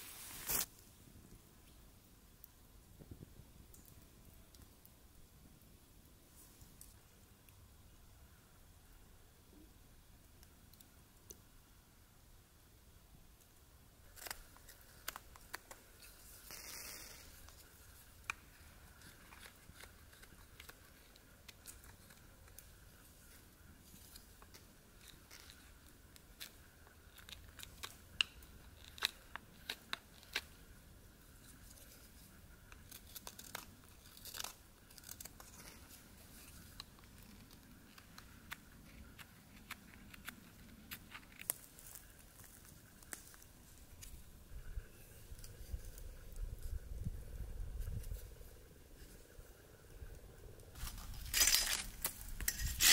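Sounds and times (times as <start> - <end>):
knife shaving wood: 14.1 - 44.1, 50.7 - 52.9.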